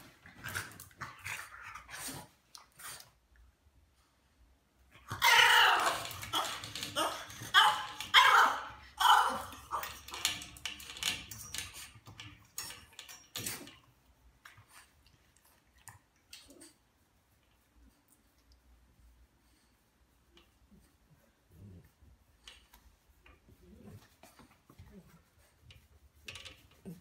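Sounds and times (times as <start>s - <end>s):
dog whining and yelping: 5.0s - 11.6s.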